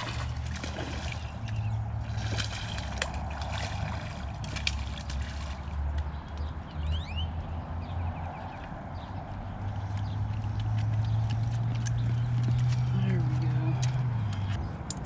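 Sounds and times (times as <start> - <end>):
fish splashing in water: 0.0 - 6.0.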